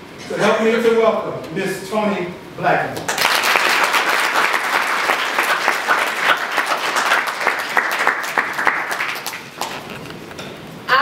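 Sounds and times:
audience applauding: 3.1 - 10.0.

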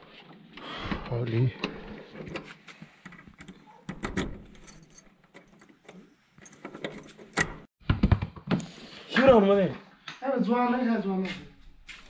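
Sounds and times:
padlock and keys clinking: 3.3 - 7.7.

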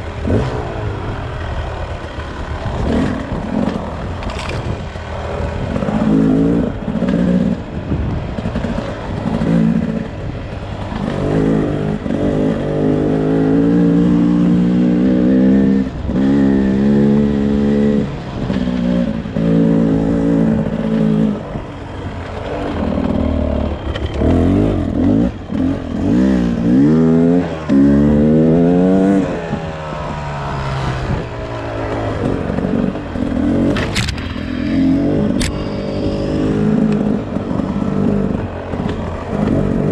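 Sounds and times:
two-stroke engine revving: 0.0 - 39.9
sharp clicks: 35.2 - 37.2.

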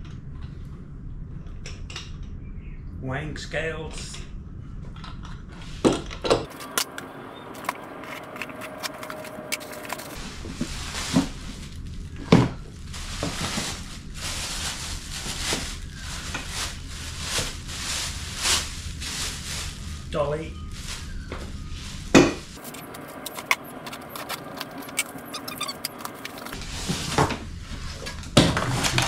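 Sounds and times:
plastic wrapping crinkling: 6.5 - 27.1.

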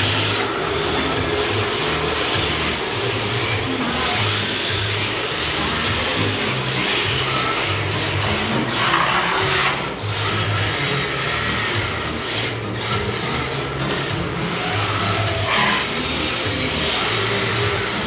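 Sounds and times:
tyres sliding on smooth floor: 0.0 - 10.0
background music with bass line: 0.0 - 18.0
electric motors whirring: 0.0 - 18.0.

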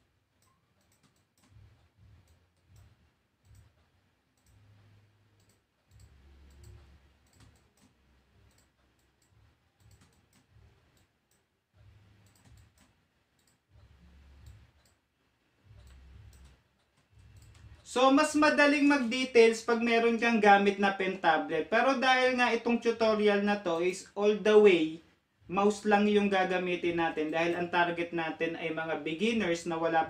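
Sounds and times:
computer mouse clicks: 0.3 - 21.1.

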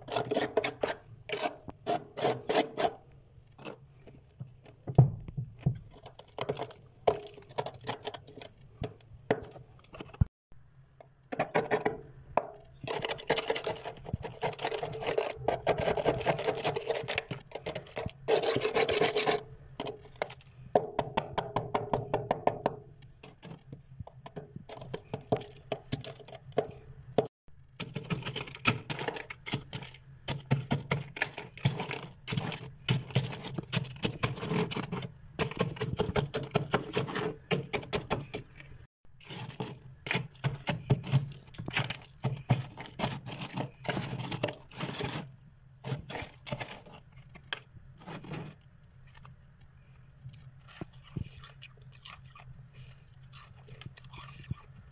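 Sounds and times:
ice being scraped and crunched: 12.8 - 19.4, 28.0 - 37.5, 39.2 - 47.1, 48.0 - 48.6.

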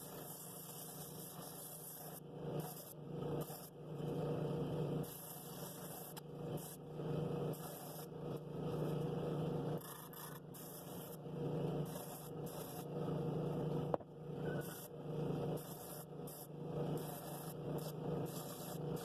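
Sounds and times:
drill press motor hum: 0.0 - 19.0.

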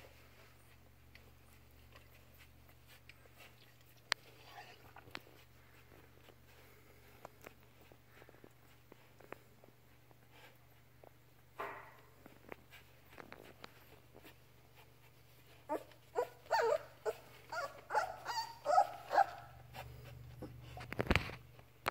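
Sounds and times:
puppy whimpering and squealing: 15.7 - 19.6.

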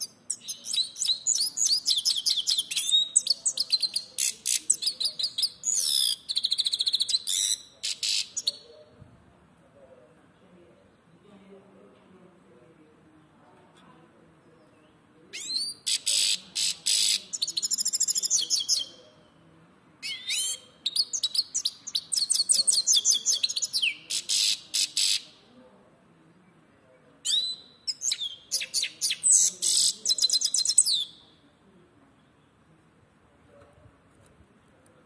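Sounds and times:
bird twittering and trilling: 0.0 - 8.7, 14.6 - 19.0, 20.0 - 25.3, 27.2 - 31.2.

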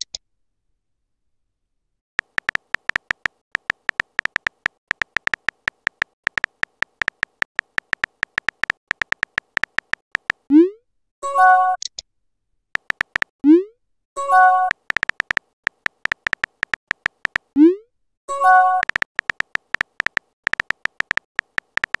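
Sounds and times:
phone keyboard beeping taps: 2.2 - 10.5, 12.8 - 13.3, 14.4 - 17.5, 18.4 - 22.0.

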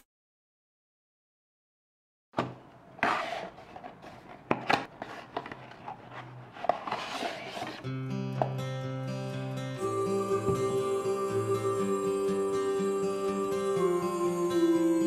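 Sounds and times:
rubbing: 3.0 - 7.9
soft background music: 8.1 - 15.0.

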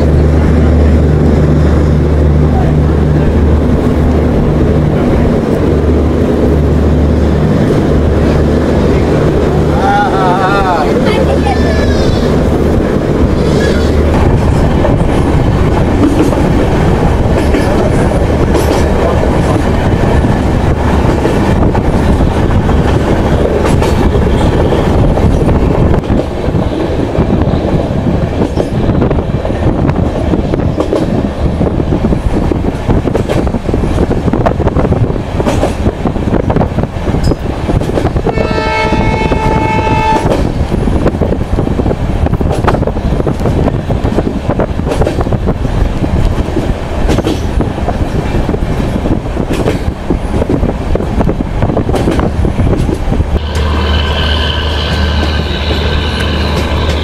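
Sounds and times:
train rumbling on rails: 0.0 - 57.0
train wheels clicking on track: 10.9 - 57.0
train horn: 38.2 - 40.4.

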